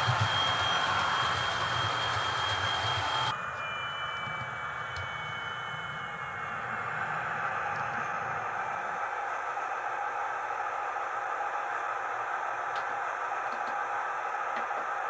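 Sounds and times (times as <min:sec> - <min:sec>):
high steady whistle: 0:00.0 - 0:11.6.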